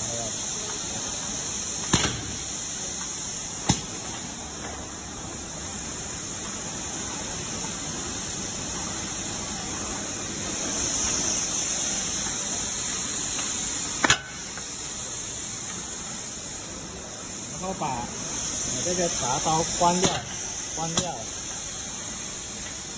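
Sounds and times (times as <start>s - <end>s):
machine hissing: 0.0s - 22.9s.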